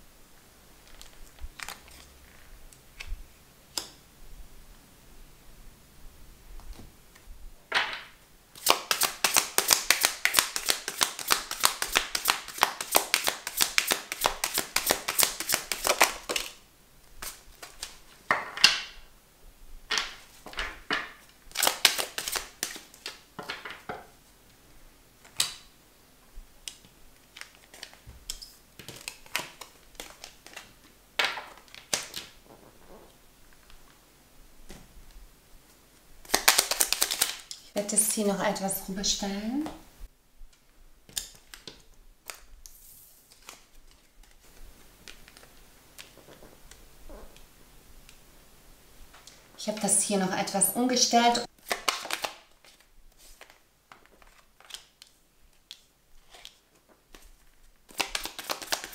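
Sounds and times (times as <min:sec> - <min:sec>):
cards being shuffled: 0:08.6 - 0:16.6, 0:17.2 - 0:18.1, 0:20.0 - 0:23.2, 0:26.7 - 0:33.1, 0:36.2 - 0:37.6, 0:41.1 - 0:47.2, 0:51.5 - 0:58.9.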